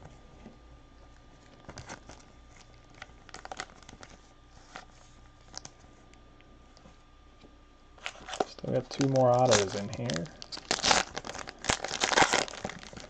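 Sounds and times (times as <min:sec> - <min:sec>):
foil wrappers crinkling: 0:01.4 - 0:05.8, 0:08.0 - 0:13.0.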